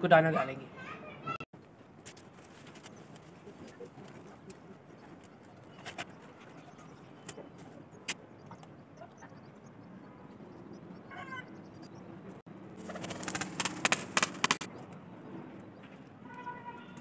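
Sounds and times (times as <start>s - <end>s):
wings flapping: 2.0s - 6.7s, 12.7s - 14.7s.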